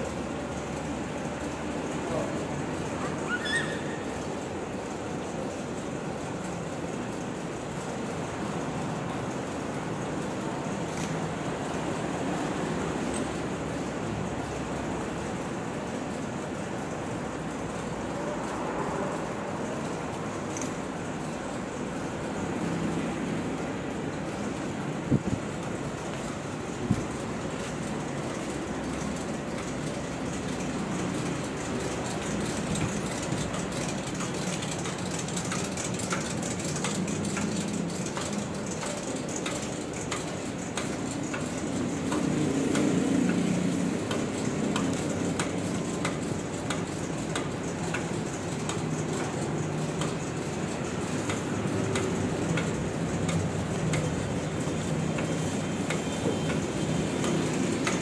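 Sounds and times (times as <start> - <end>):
machinery humming: 0.0 - 58.0
regular machine clicking: 19.2 - 58.0.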